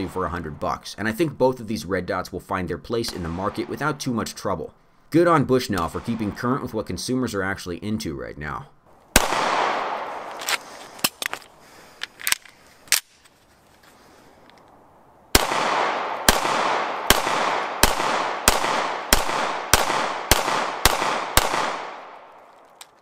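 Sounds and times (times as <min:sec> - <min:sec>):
pistol shots: 0:03.1 - 0:04.0, 0:09.1 - 0:10.5, 0:15.3 - 0:22.4.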